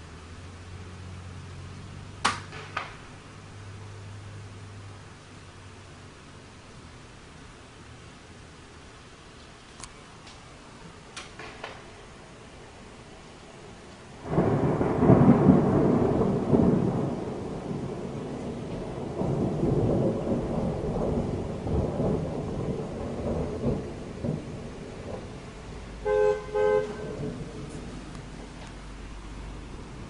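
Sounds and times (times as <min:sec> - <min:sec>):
thunder crack and rumble: 0:14.2 - 0:30.0.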